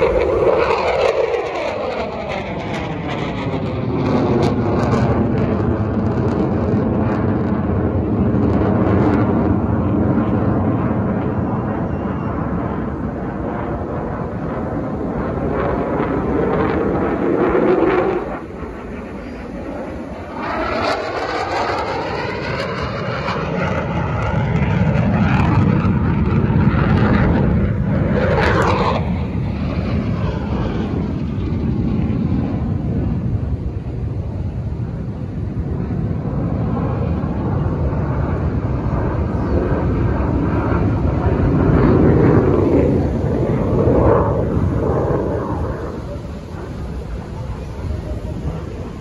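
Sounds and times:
jet aircraft engine roar: 0.0s - 49.0s.

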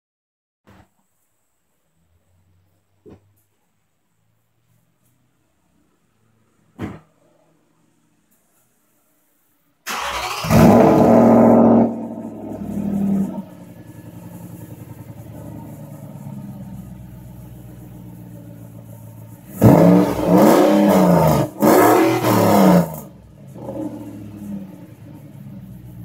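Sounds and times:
car engine starting: 9.8s - 26.0s
car engine idling: 9.9s - 26.0s
car engine revving: 9.9s - 26.0s.

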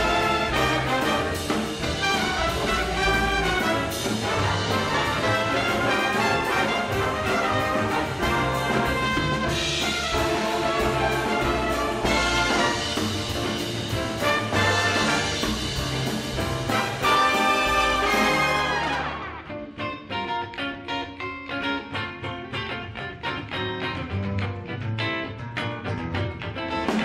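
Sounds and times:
big band jazz playing: 0.0s - 20.4s.

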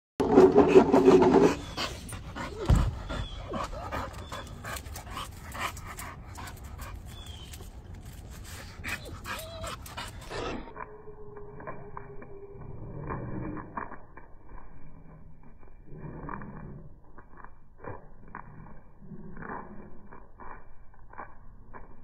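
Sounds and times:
dog panting: 0.8s - 10.7s
dog whimpering: 8.9s - 10.7s.

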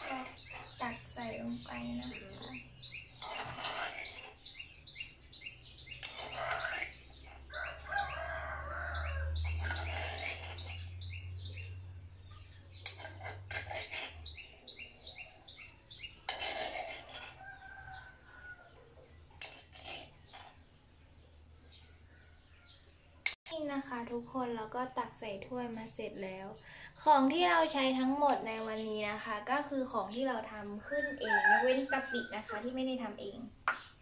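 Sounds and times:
birds chirping: 0.0s - 23.4s, 27.7s - 34.0s
rooster-like calls: 7.4s - 10.7s, 30.8s - 32.6s.

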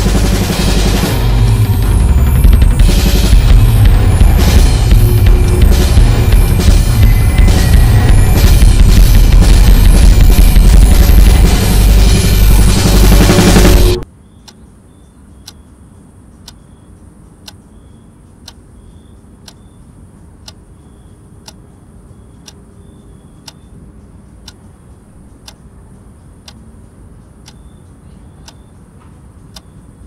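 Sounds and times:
loud music: 0.0s - 14.0s
clock ticking: 0.0s - 14.6s, 21.4s - 21.7s, 22.4s - 22.8s, 23.4s - 30.0s.

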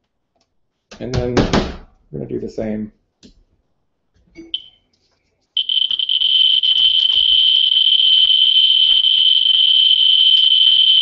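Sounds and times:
geiger counter beep: 4.4s - 4.8s, 5.6s - 11.0s.

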